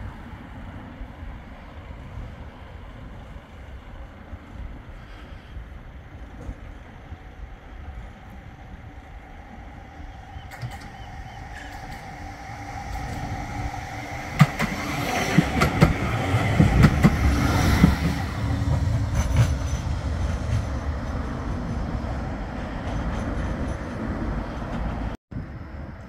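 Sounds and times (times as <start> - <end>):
tram rumbling: 0.0 - 26.0
tram wheels clicking on track: 6.2 - 25.2.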